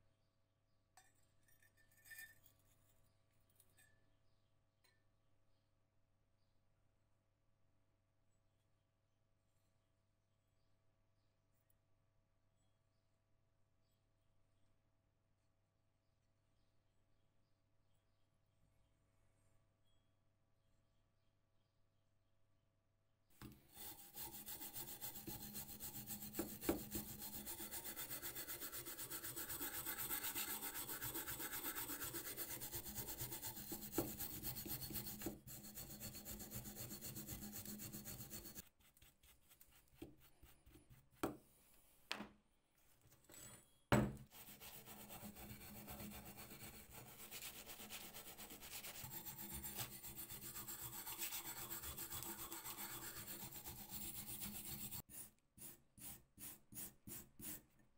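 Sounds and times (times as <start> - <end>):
wire brush scrubbing metal: 23.7 - 41.0, 44.4 - 55.0.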